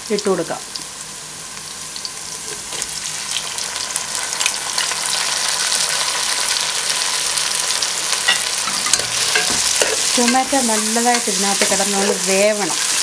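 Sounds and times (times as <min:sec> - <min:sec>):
onions sizzling in hot oil: 0:00.0 - 0:13.0.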